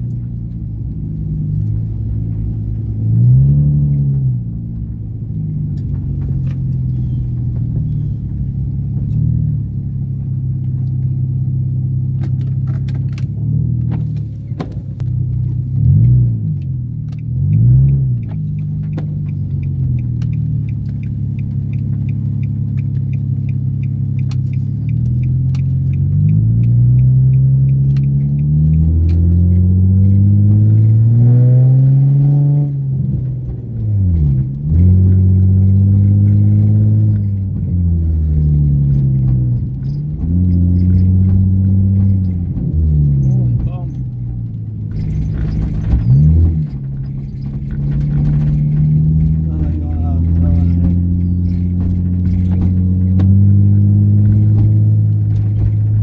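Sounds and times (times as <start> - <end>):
car engine from inside cabin: 0.0 - 56.0
light ticking: 16.6 - 29.2.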